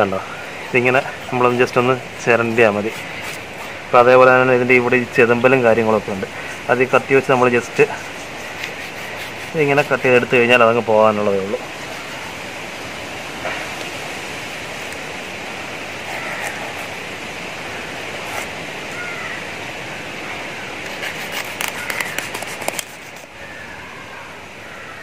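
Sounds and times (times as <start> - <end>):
knife scraping fish scales: 0.3 - 3.8, 6.2 - 10.6, 15.9 - 17.1, 18.2 - 18.6, 20.8 - 23.3.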